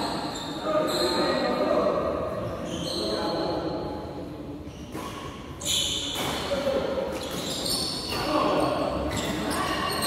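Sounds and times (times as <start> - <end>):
shoes squeaking on court floor: 0.0 - 1.7, 2.4 - 3.9, 4.6 - 10.0
players' voices echoing: 0.0 - 10.0
short high squeaks: 4.7 - 6.3, 7.2 - 8.4.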